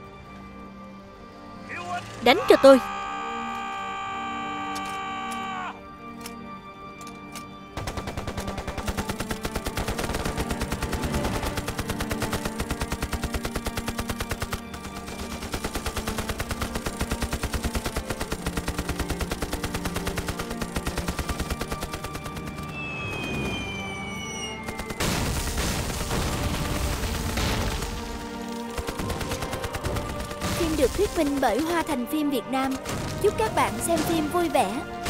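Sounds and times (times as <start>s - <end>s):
dramatic music: 0.0s - 35.0s
machine-gun fire: 7.8s - 22.8s, 24.7s - 31.8s
falling bomb whistle: 22.6s - 25.4s.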